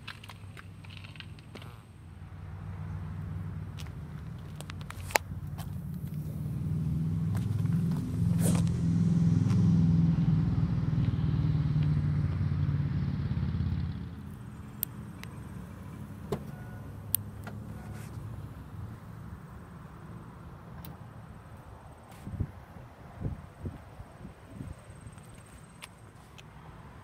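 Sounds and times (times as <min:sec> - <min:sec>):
van engine idling: 0:13.1 - 0:21.5.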